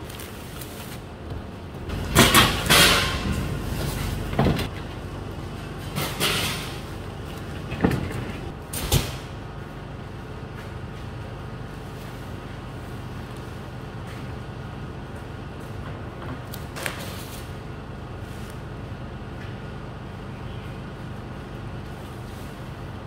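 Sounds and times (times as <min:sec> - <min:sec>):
dry bales rustling and crackling: 0:00.0 - 0:07.7
steady low hum: 0:00.0 - 0:23.0.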